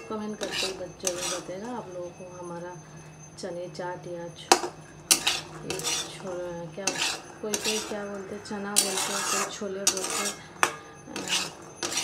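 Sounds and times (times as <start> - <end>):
metal spatula scraping pan: 0.0 - 2.4, 4.5 - 12.0
sharp metal clink: 4.5 - 12.0.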